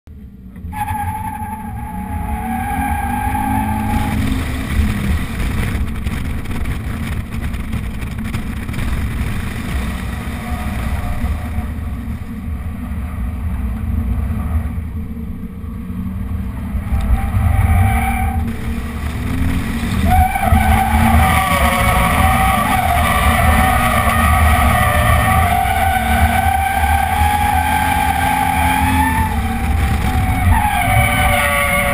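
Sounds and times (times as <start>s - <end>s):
car engine running hard: 1.6s - 31.9s
heavy low rumble: 3.7s - 31.9s
tyres squealing: 19.4s - 31.9s.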